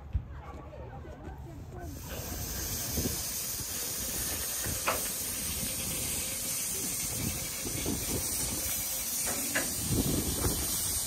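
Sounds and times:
steam locomotive hissing: 0:01.9 - 0:11.0.

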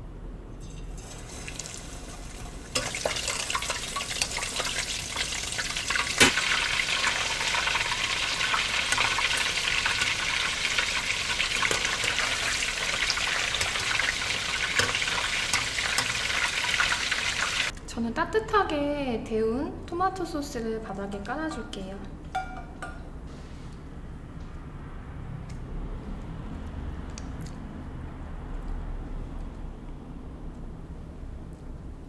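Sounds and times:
food deep-frying in oil: 0:00.6 - 0:17.8.

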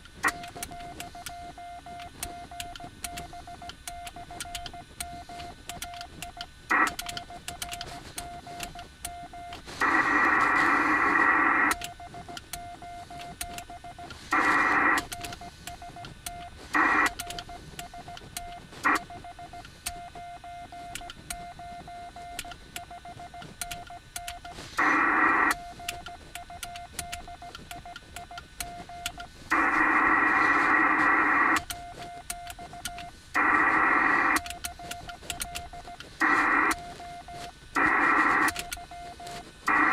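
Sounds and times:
radio band hiss: 0:05.4 - 0:21.5, 0:22.1 - 0:39.9.

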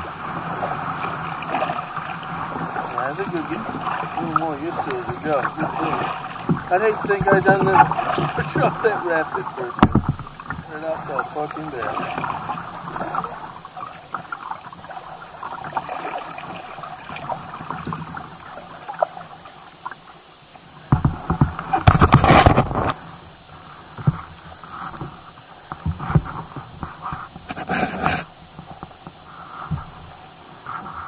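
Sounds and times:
water dripping and lapping: 0:00.0 - 0:22.1
kayak paddles dipping: 0:00.0 - 0:31.0
loud rough noise: 0:02.3 - 0:12.0.

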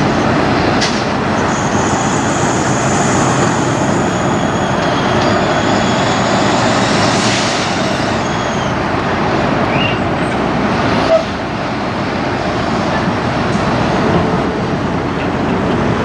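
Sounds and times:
diesel truck engines running: 0:00.0 - 0:16.0
faint high squeal: 0:08.2 - 0:08.8.

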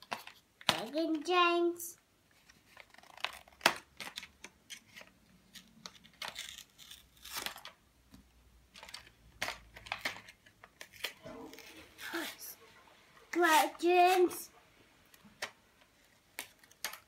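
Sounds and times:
paper wrapper crinkling and tearing: 0:02.3 - 0:07.8, 0:08.7 - 0:12.5, 0:15.3 - 0:17.0.

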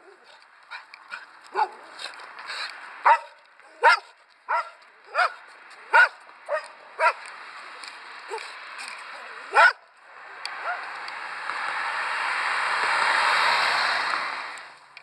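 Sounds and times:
dog barking: 0:00.7 - 0:01.9, 0:03.0 - 0:07.2, 0:09.5 - 0:09.8, 0:10.6 - 0:10.9.

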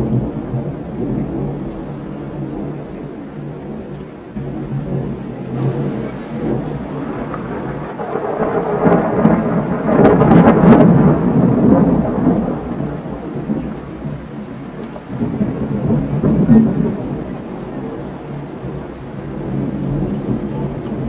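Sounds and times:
steady rain: 0:00.0 - 0:21.0
thunder rumbling: 0:00.0 - 0:21.0.

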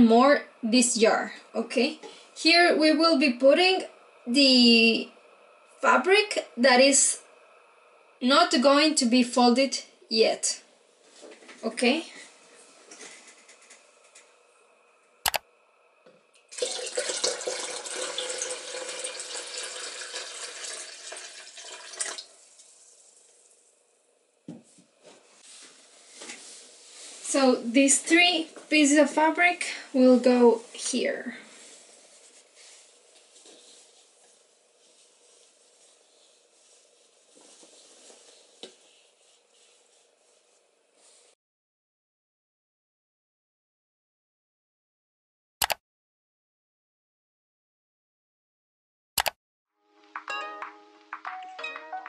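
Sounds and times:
sharp click: 0:15.2 - 0:15.4
water pouring into plastic bucket: 0:16.5 - 0:23.4
fabric rustling in wet dye: 0:24.9 - 0:27.6, 0:28.3 - 0:41.4.

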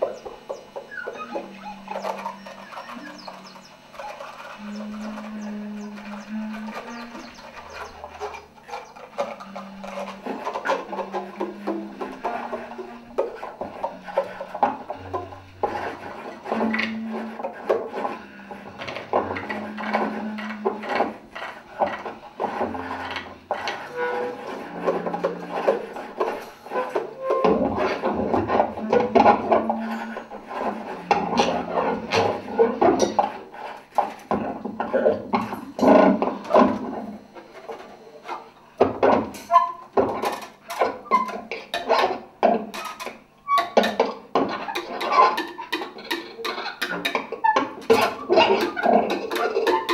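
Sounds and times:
bass clarinet low notes: 0:00.0 - 0:21.2, 0:22.5 - 0:33.0
found object percussion scraping: 0:00.0 - 0:38.6
short high squeaks: 0:00.1 - 0:13.3, 0:22.6 - 0:25.7.

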